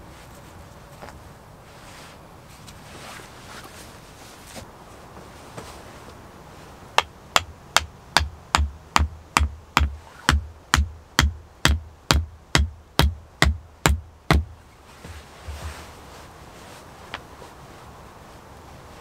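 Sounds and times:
axe head hammering wooden stake: 7.0s - 14.5s.

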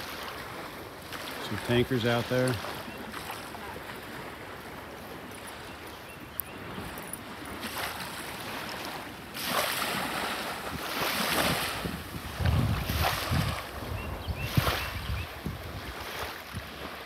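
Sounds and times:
small waves on shore: 0.0s - 17.0s
wind gusting over microphone: 6.6s - 17.0s.

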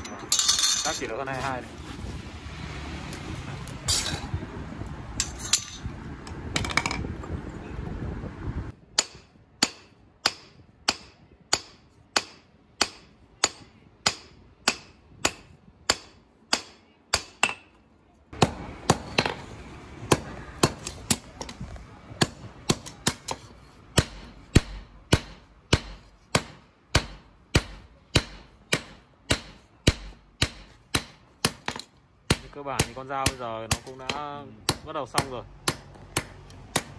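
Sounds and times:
steady rushing noise: 0.1s - 8.8s
hammer striking metal on anvil: 9.0s - 17.8s, 22.2s - 36.9s.

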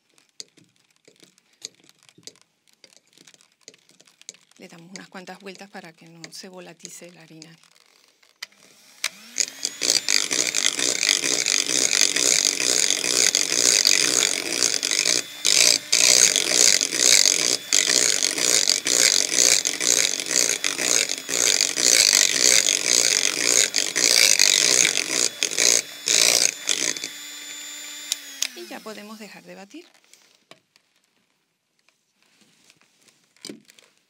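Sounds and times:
hand mixer beaters rattling: 0.0s - 30.3s
mixer motor hum: 8.4s - 29.6s.

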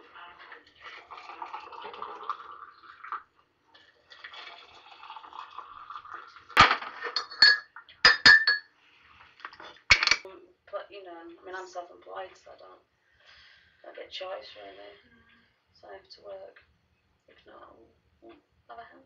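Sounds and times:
glass or crockery clinking: 6.6s - 8.7s.

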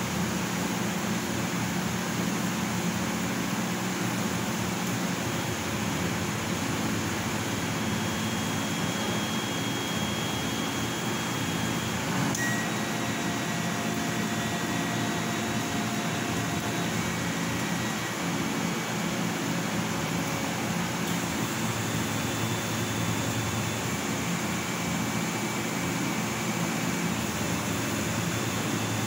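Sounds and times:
laser cutter fan rushing: 0.0s - 29.0s
faint high whines: 7.5s - 19.7s.

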